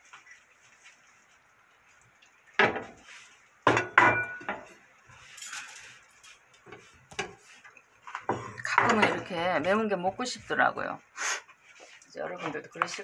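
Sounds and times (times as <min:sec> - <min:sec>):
kitchenware clinks: 0:03.7 - 0:04.7, 0:05.4 - 0:06.3.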